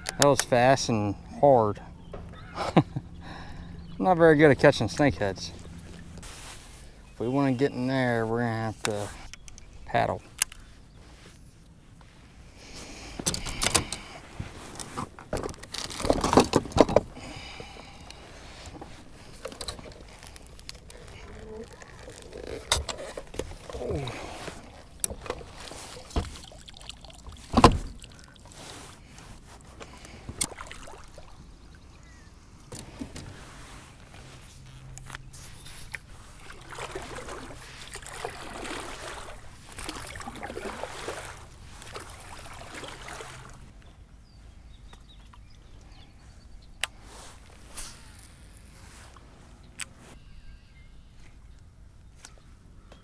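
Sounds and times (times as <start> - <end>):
paddle strokes splashing water: 17.2 - 31.6, 35.4 - 43.8.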